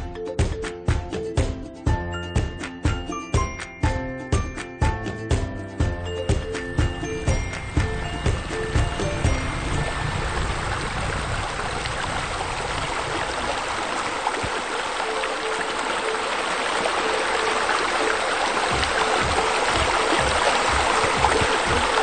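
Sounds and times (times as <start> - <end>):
fountain water splashing: 6.6 - 22.0.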